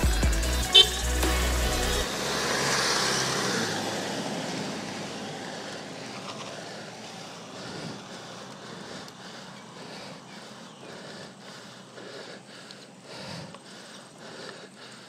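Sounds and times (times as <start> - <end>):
car engine and tyre noise: 0.0 - 15.0.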